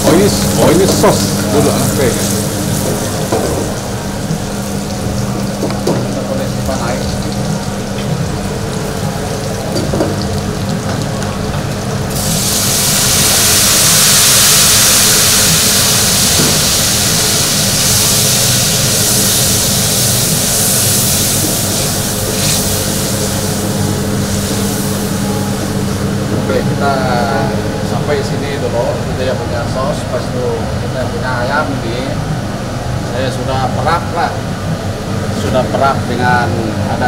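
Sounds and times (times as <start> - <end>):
kitchen hum: 0.0 - 32.1
sauce sizzling in a pan: 12.0 - 26.1.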